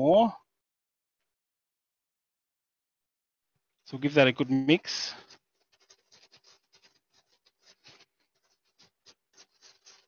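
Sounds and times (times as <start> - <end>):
utensil scratching in container: 5.0 - 10.0.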